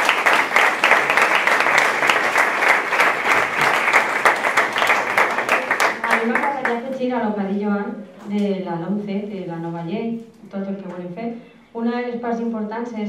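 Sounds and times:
crowd applauding: 0.0s - 6.8s.

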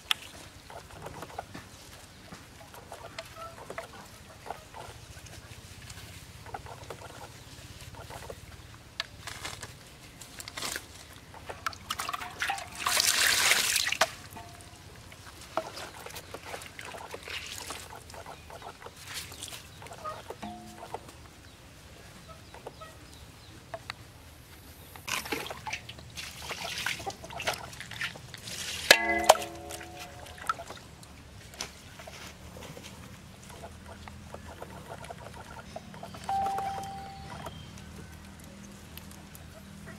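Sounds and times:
water splashing on concrete: 11.6s - 14.7s
water poured from a scoop: 11.7s - 14.7s, 15.5s - 17.8s, 25.1s - 30.8s.

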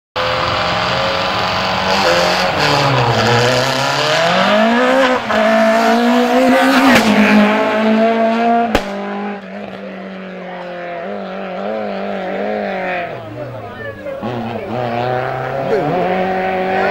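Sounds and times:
race car engine revving: 0.2s - 16.9s.

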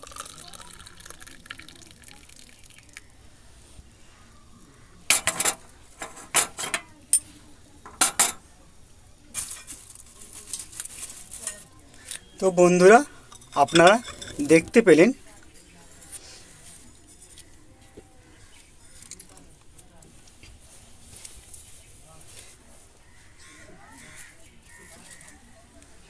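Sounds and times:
milk pouring into mug: 0.0s - 3.2s
glass clinks and knocks: 5.1s - 6.9s, 7.9s - 8.4s, 12.9s - 14.9s.

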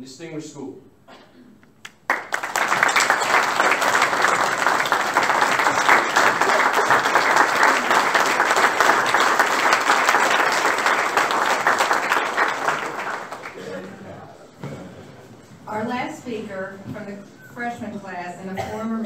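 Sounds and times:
audience applauding: 1.8s - 14.1s.

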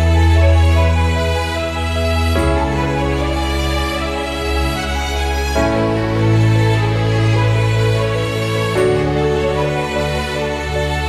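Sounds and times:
slow sustained chords with soft melody: 0.0s - 11.0s.

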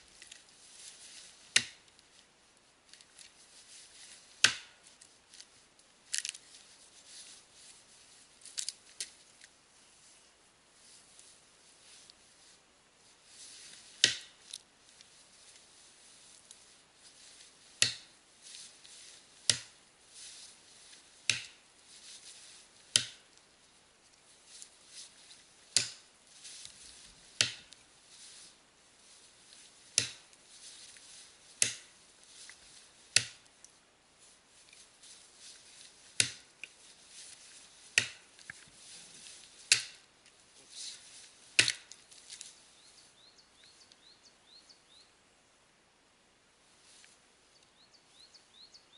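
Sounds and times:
axe chopping into tree trunk: 4.4s - 4.8s, 14.0s - 14.4s, 17.8s - 18.1s, 19.5s - 19.7s, 21.3s - 21.6s, 22.9s - 23.2s, 25.8s - 26.0s, 27.4s - 27.7s, 30.0s - 30.2s, 31.6s - 31.9s, 33.2s - 33.4s, 36.2s - 36.5s, 38.0s - 38.2s, 39.7s - 40.0s, 41.6s - 41.9s.

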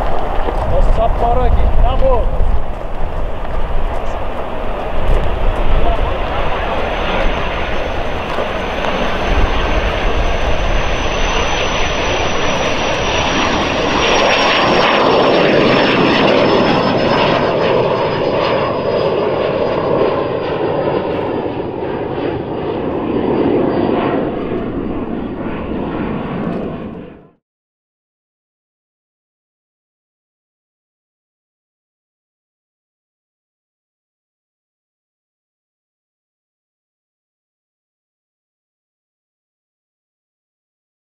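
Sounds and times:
high jet engine whine: 0.0s - 27.4s
jet taking off: 0.0s - 27.4s.

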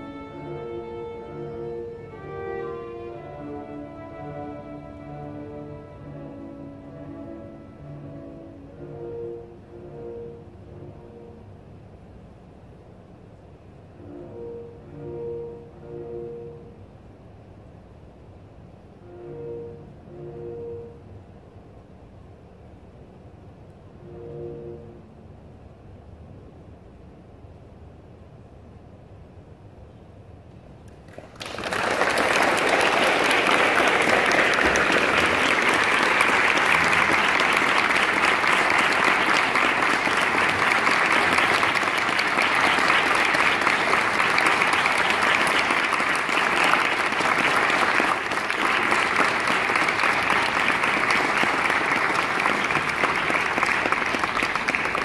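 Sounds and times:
audience applause: 30.9s - 55.0s.

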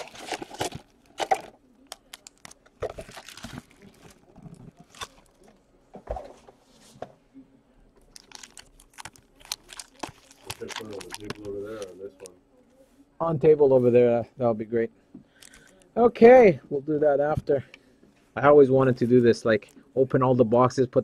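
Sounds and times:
foil packs crinkling: 0.0s - 5.5s, 8.0s - 12.3s.

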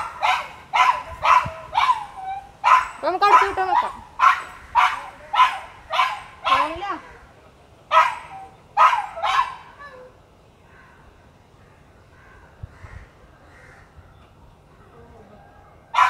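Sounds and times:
dog barking: 0.0s - 6.8s, 7.9s - 9.7s.

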